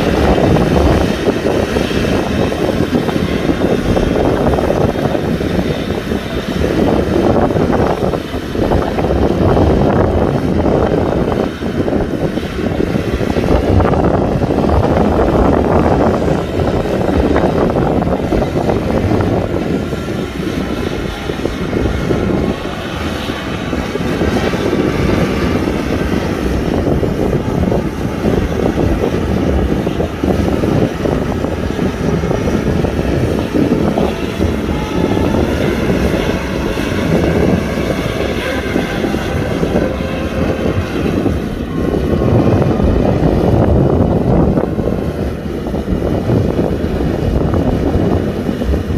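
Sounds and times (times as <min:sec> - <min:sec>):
tractor diesel engine running: 0:00.0 - 0:48.9.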